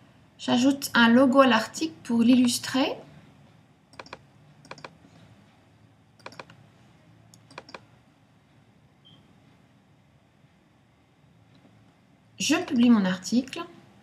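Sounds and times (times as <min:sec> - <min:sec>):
computer mouse clicks: 0:03.9 - 0:05.0, 0:06.2 - 0:06.6, 0:07.3 - 0:07.9.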